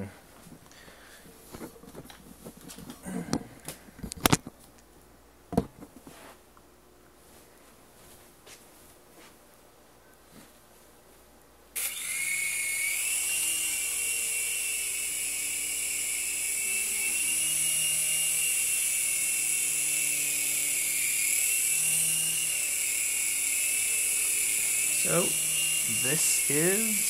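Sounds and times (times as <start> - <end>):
toy helicopter motors whining: 11.8 - 27.0.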